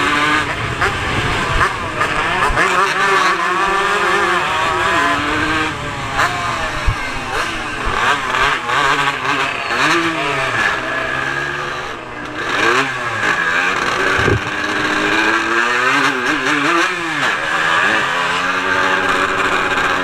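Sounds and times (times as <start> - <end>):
motorcycle engine revving: 0.0 - 20.0.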